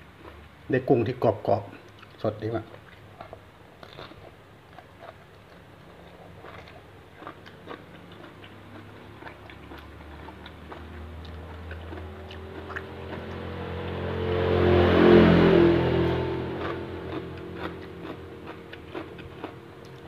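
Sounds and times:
person chewing: 0.1s - 0.5s, 1.8s - 13.9s, 16.5s - 20.0s
music with low held tones: 13.0s - 20.0s.

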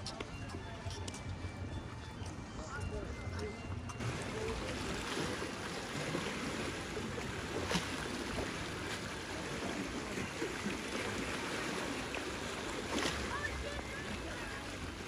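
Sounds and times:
surf splashing on rocks: 4.0s - 15.0s.

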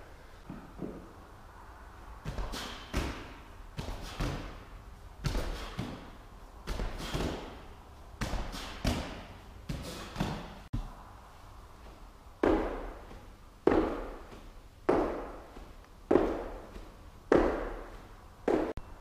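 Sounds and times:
hands slapping medicine ball: 5.2s - 7.6s, 8.2s - 10.6s, 12.4s - 18.8s
feet landing thud: 12.4s - 18.8s.

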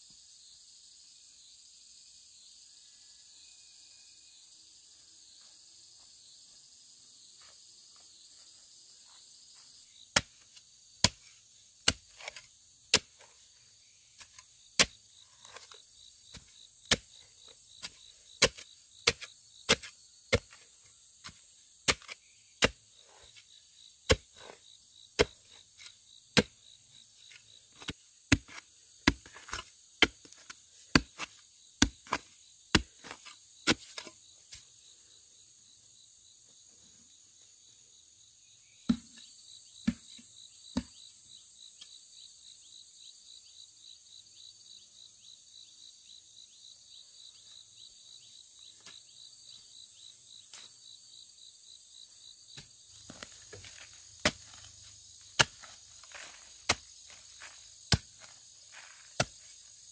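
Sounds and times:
insects trilling: 0.0s - 59.9s
sharp chopping strikes: 38.9s - 39.2s, 52.6s - 54.6s.

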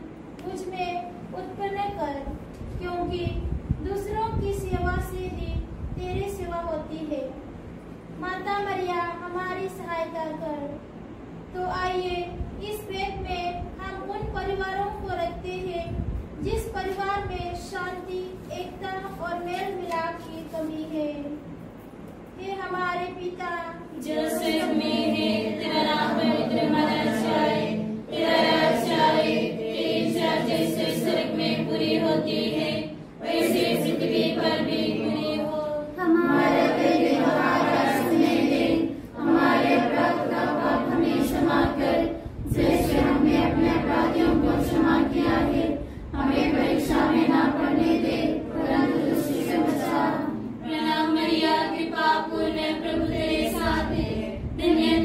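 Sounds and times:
women and girls singing: 23.9s - 55.0s.

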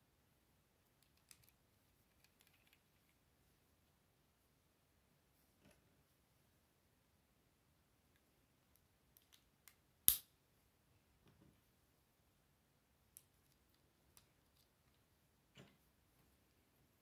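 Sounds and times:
plastic lego pieces clicking: 1.0s - 2.8s
sharp plastic snap: 9.2s - 10.3s.

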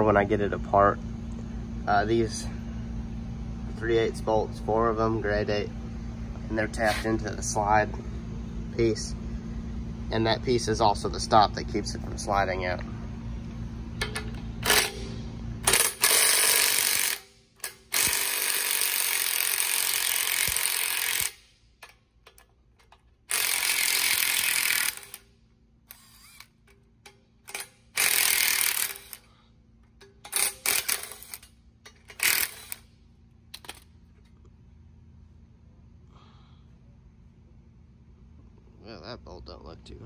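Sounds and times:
impact wrench hammering: 14.0s - 25.3s, 25.9s - 32.8s.

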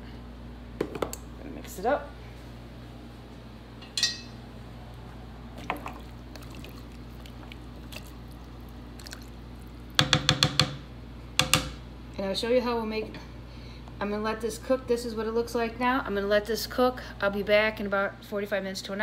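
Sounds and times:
hand sloshing food in water: 5.5s - 9.4s.

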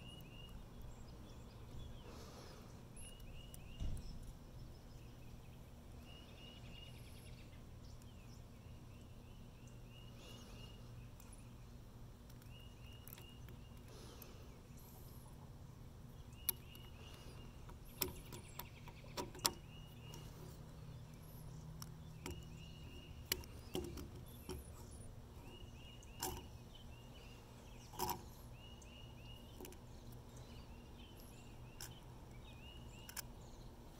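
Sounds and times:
faint outdoor ambience: 0.0s - 33.9s.

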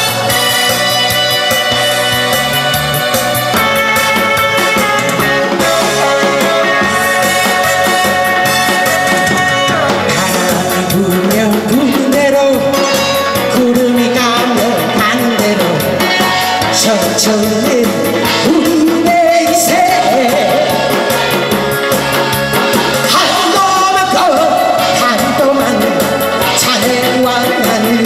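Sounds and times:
music with steady beat: 0.0s - 28.0s
woman singing into microphone: 5.2s - 21.4s, 23.1s - 28.0s.

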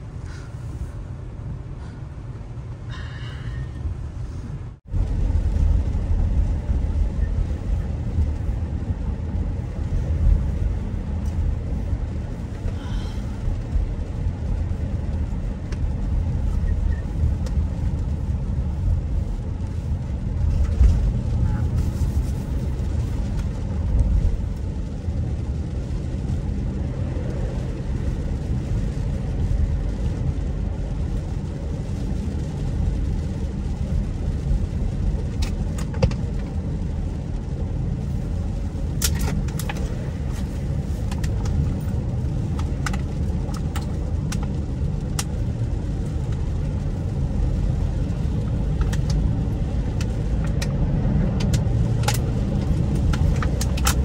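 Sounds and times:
road and engine rumble in car: 0.0s - 54.0s
sharp clicks and ticks: 50.0s - 54.0s.

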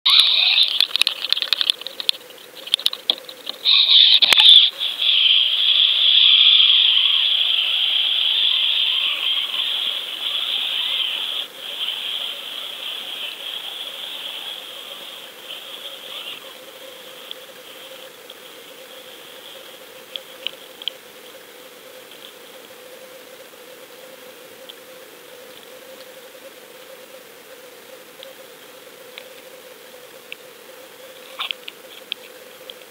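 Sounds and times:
faint steady hum: 0.1s - 32.9s
underwater rushing hiss: 3.6s - 16.4s.

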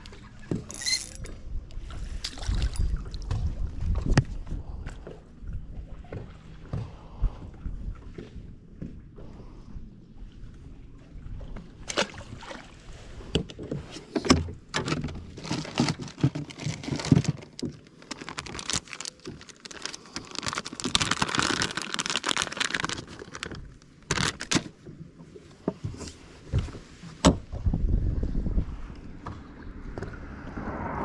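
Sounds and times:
knocks and rattles of handling: 13.4s - 24.9s.

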